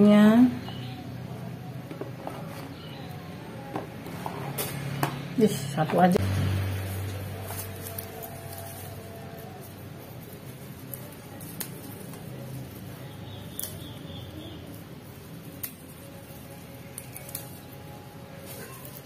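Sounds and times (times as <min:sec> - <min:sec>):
celery stems snapping: 0:07.0 - 0:19.0.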